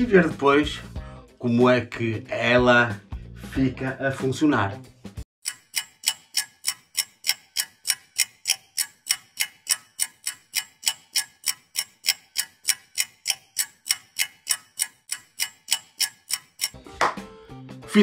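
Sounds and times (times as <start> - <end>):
clock ticking: 5.4 - 16.8.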